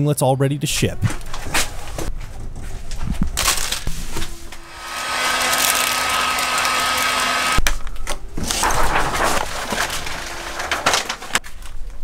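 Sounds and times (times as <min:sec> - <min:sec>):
plastic wrap crinkling: 0:03.4 - 0:04.2, 0:08.7 - 0:11.8
heat gun fan whining: 0:04.3 - 0:07.6, 0:09.2 - 0:11.4.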